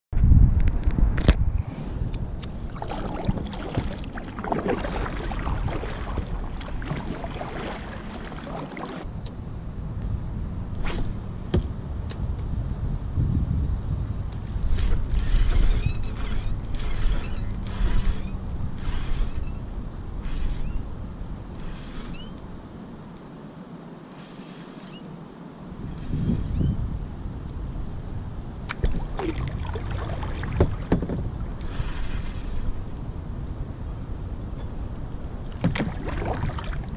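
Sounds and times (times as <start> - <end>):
wind rumble on microphone: 0.1 - 36.9
paddle splashing water: 2.4 - 9.1, 28.6 - 32.9, 35.5 - 36.9
fishing reel whirring: 14.8 - 19.6, 20.2 - 20.8, 21.5 - 22.4.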